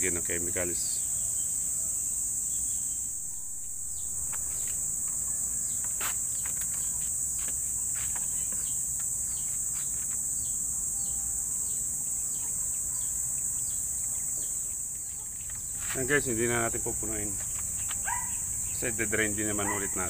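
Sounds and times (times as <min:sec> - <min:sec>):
insects droning: 0:00.0 - 0:20.0.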